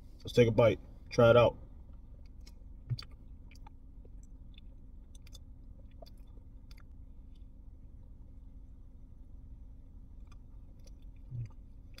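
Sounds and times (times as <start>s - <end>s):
faint steady low hum: 0.0s - 12.0s
wet mouth clicks and smacks: 2.2s - 7.5s, 10.2s - 12.0s
person chewing food: 2.2s - 7.6s, 10.1s - 12.0s.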